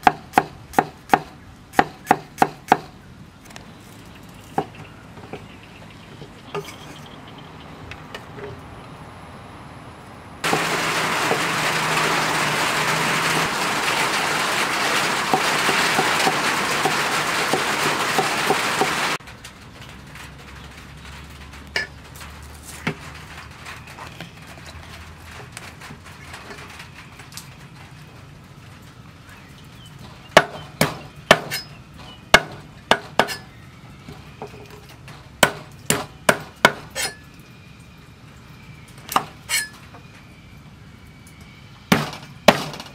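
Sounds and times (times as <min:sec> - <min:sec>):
loud rushing noise with crackle: 0:10.4 - 0:29.9.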